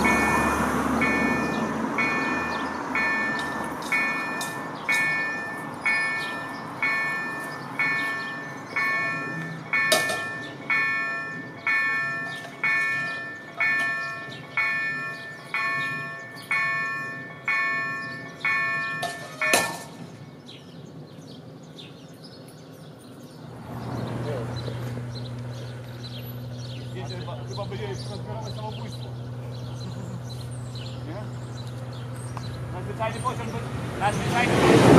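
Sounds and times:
level-crossing warning bell: 0.0 - 20.4.

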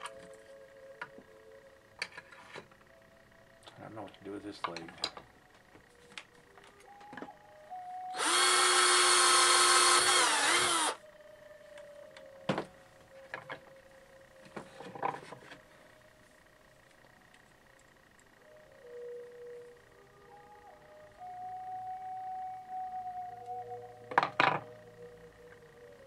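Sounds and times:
cordless drill running: 8.2 - 11.0.

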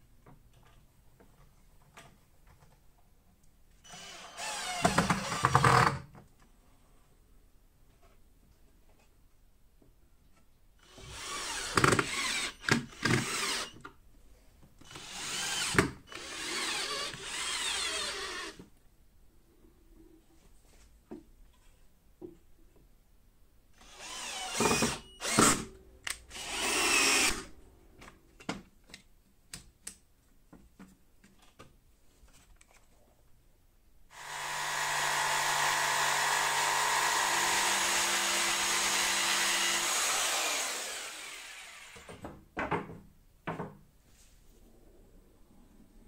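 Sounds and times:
jigsaw motor running: 3.9 - 5.8, 15.0 - 18.6, 23.9 - 25.5, 26.3 - 27.4, 34.1 - 42.1.

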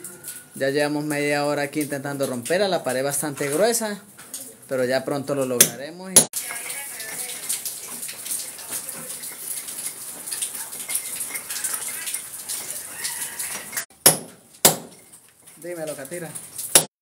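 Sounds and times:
sharp knocks: 14.0 - 15.0.

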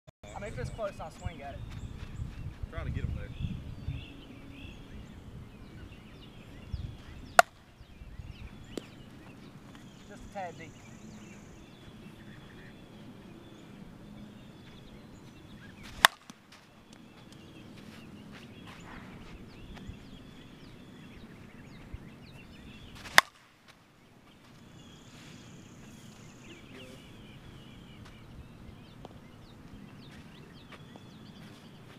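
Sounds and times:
bat cracking on softball: 7.3 - 7.7, 15.8 - 17.5, 23.0 - 23.8.

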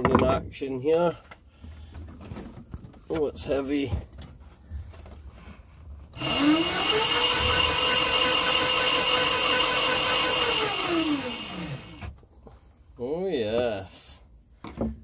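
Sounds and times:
electric motor whine: 6.2 - 12.1.

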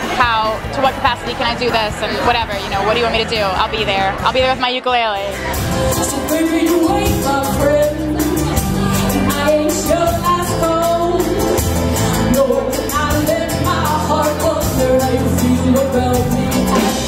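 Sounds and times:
woman singing: 5.9 - 17.0.

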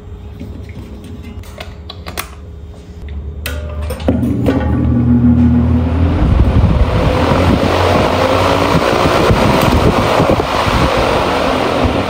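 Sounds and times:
fan wind buffeting microphone: 4.0 - 12.0.

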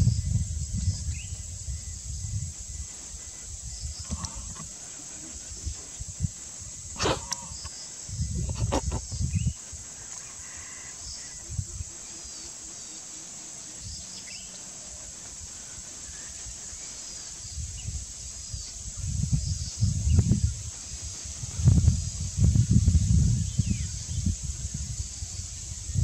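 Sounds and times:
high insect drone: 0.0 - 26.0
elephant rustling in tall grass: 1.0 - 8.4, 9.0 - 25.9
bird chirps: 7.0 - 18.8.

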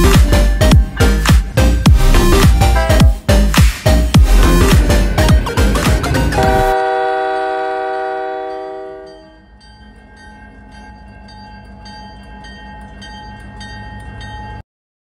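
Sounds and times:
locomotive air horn: 6.3 - 9.4.

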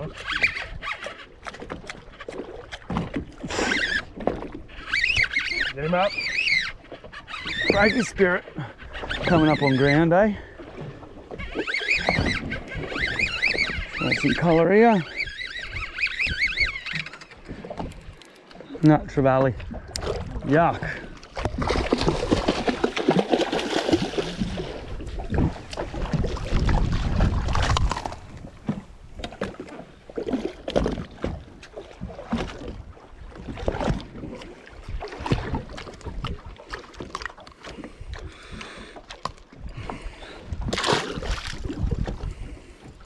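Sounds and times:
water sloshing against boat hull: 0.0 - 43.0
wind on microphone: 23.9 - 29.5, 39.6 - 43.0.

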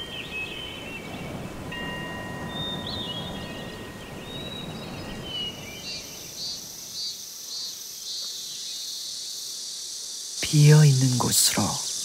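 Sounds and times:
crickets chirping: 0.0 - 12.0
wind bell ringing: 1.7 - 5.6.

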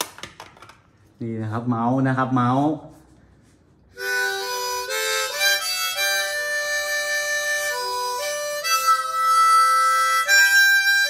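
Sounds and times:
harmonica chords: 3.9 - 11.0.

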